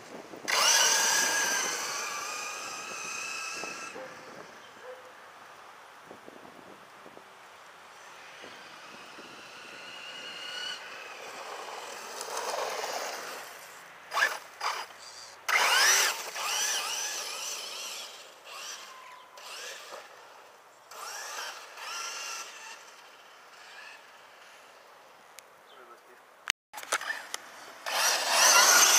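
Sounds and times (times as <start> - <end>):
electric motor whining: 0.4 - 4.7, 8.0 - 24.6, 27.0 - 28.9.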